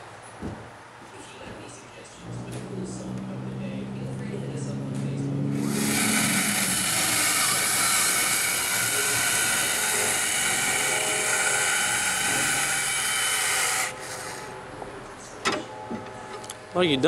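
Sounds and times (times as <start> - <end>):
caulking gun motor whining: 5.0 - 14.6.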